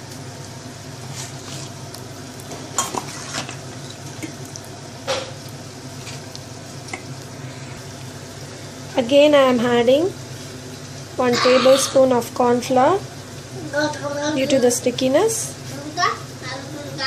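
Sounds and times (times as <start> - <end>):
spoon scraping in a bowl: 2.8 - 3.6.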